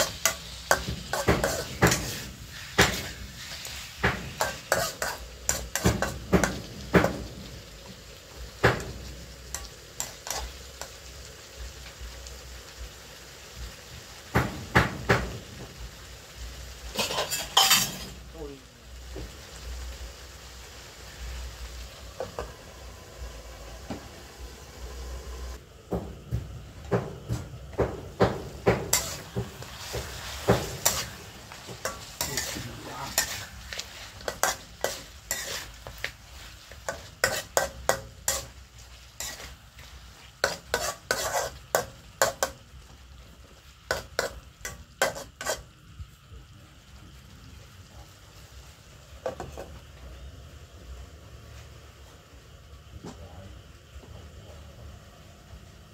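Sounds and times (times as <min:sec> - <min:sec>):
spatula scraping a wok: 0:00.0 - 0:07.3, 0:09.5 - 0:11.2, 0:16.6 - 0:18.2, 0:27.7 - 0:42.6, 0:43.6 - 0:45.8
food sizzling in oil: 0:00.0 - 0:55.9.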